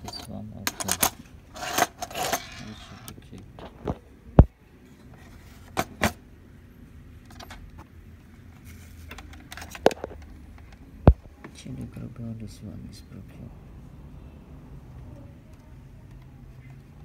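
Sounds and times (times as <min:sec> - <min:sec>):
clicks and knocks of parts handled: 0:00.0 - 0:06.2, 0:07.2 - 0:11.2.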